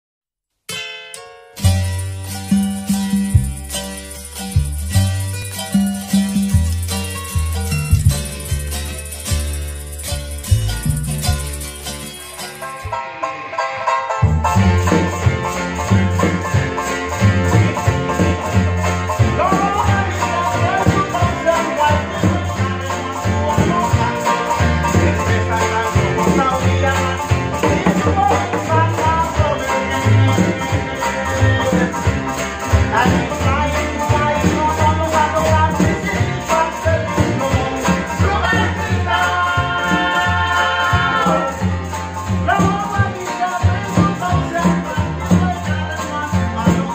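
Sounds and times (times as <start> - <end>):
string band playing: 1.6 - 46.9
men singing: 19.1 - 46.9.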